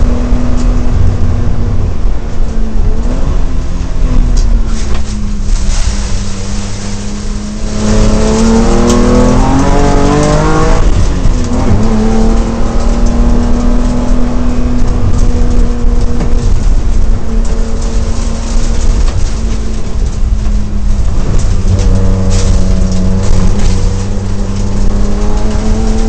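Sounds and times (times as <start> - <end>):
race car engine revving: 0.0 - 26.0.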